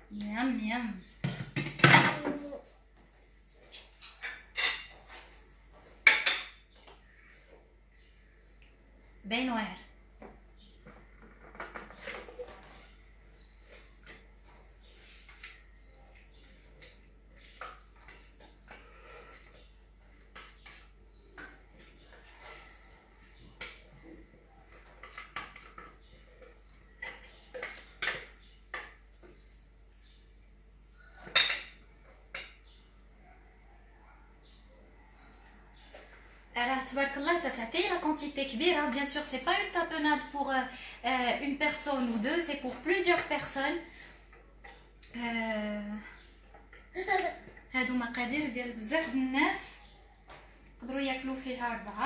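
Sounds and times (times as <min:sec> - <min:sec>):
dishes and utensils clattering: 0:03.8 - 0:05.3, 0:31.1 - 0:32.6.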